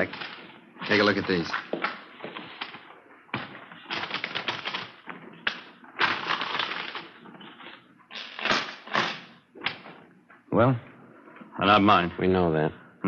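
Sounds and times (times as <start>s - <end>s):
rapid clattering of small objects: 0.0s - 1.7s, 3.8s - 9.3s.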